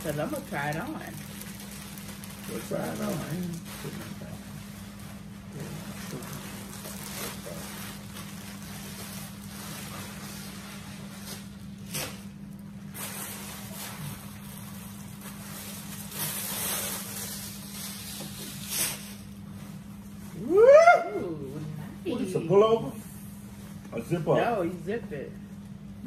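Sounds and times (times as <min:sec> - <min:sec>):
plastic bag crinkling: 0:00.0 - 0:19.5
steady low hum: 0:00.0 - 0:26.0.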